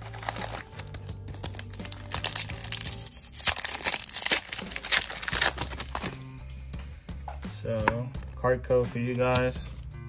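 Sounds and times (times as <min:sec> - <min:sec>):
foil pack crinkling and tearing: 0:00.0 - 0:06.2
background music: 0:00.0 - 0:10.0.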